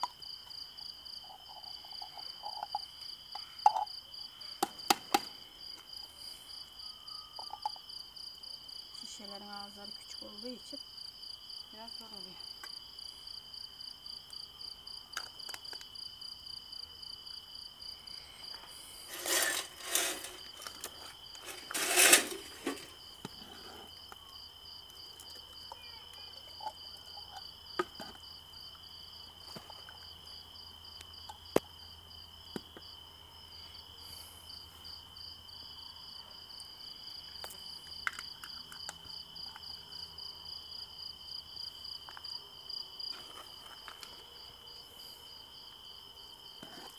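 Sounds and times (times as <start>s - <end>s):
crickets chirping: 0.0s - 46.9s
loud scraping rubs: 18.8s - 23.9s.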